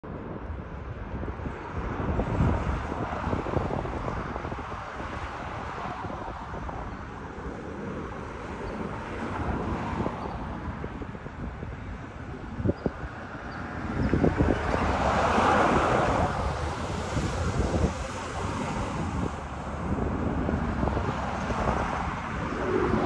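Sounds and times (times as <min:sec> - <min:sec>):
wind buffeting microphone: 0:00.0 - 0:23.0
distant jet engine rumble: 0:02.8 - 0:23.0.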